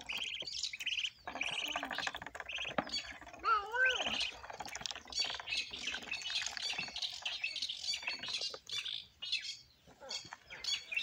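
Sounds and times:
ducklings peeping: 0.0s - 11.0s.

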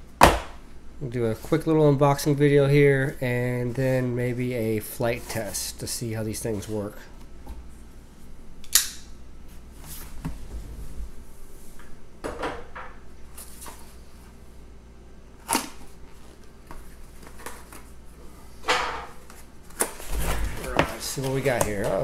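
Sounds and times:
cardboard box rustling and scraping: 20.0s - 21.9s.

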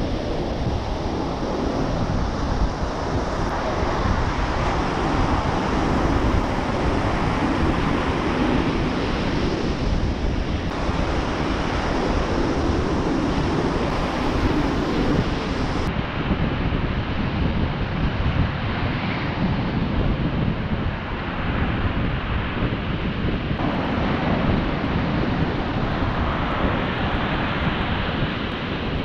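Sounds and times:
ocean surf breaking: 0.0s - 15.9s, 23.6s - 29.0s
wind rumbling on microphone: 0.0s - 29.0s.

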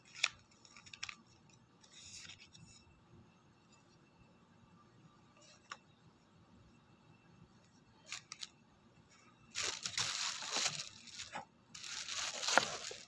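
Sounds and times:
packaging rustling and scraping: 8.1s - 8.5s, 9.5s - 13.0s.

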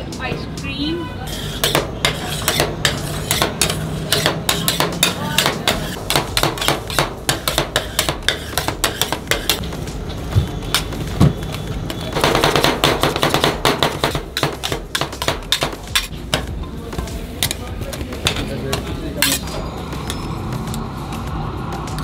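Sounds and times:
spatula scraping steel plate: 1.2s - 9.6s
spatulas tapping on steel plate: 1.6s - 9.6s, 12.3s - 16.5s.

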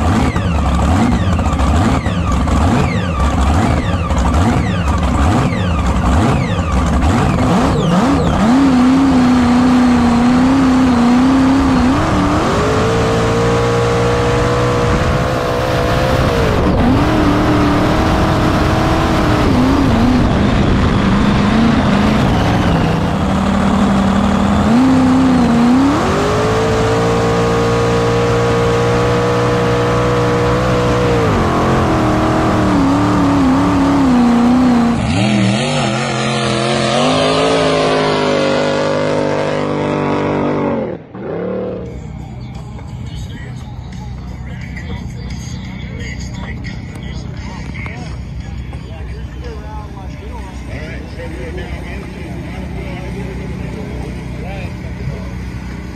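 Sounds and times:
jet boat engine running loud: 14.5s - 26.3s.

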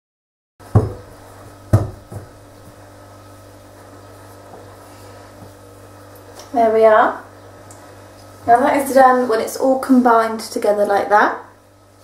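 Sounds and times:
faint steady hum: 0.6s - 12.0s
dull knocks in glass bowl: 0.8s - 1.1s, 1.7s - 2.4s.

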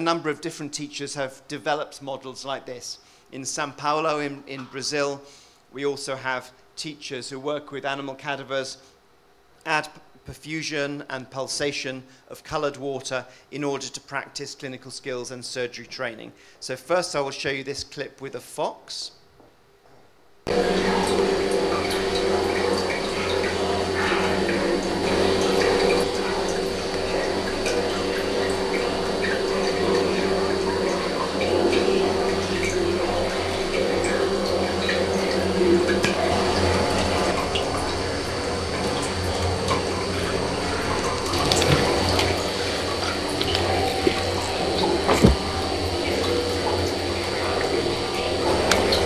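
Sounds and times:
mechanical hum: 0.0s - 49.0s
water running: 20.5s - 49.0s.

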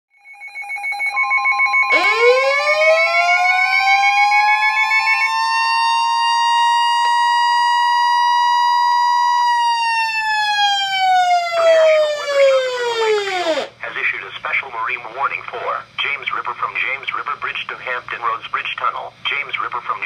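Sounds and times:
pulsing beep alarm: 0.2s - 9.0s
siren winding up and down: 1.1s - 13.7s.

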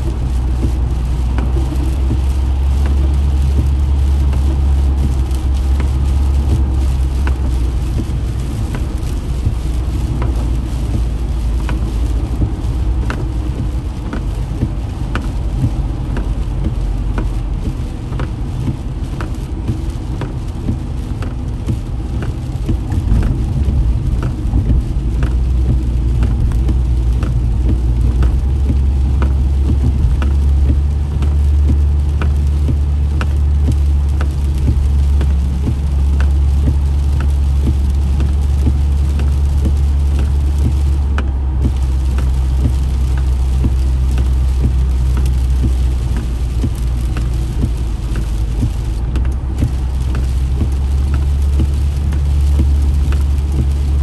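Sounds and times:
engine and tyres rumbling: 0.0s - 54.0s
rain on windshield: 0.0s - 54.0s.

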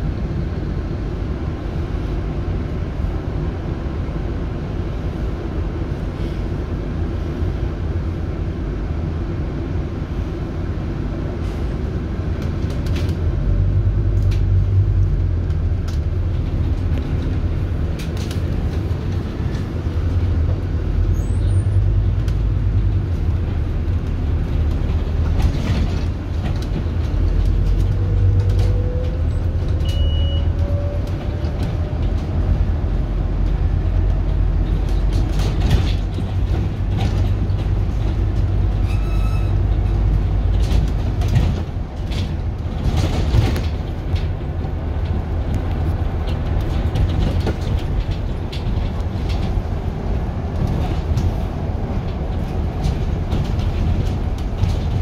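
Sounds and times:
bus engine and road rumble: 0.0s - 55.0s
light rattles and clicks: 39.6s - 55.0s.

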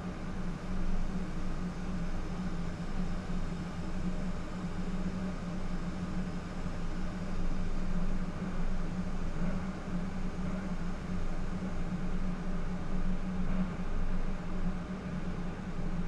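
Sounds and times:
ventilation fans running: 0.0s - 16.0s.

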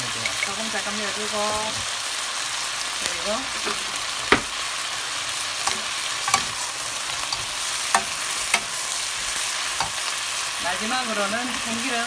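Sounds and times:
food sizzling in a wok: 0.0s - 12.0s
wooden spatulas knocking on pan: 3.6s - 4.6s.

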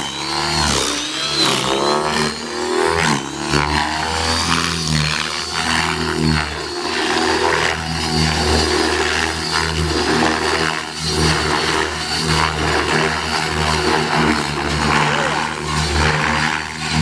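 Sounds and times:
model helicopter rotor and motor: 0.0s - 17.0s.

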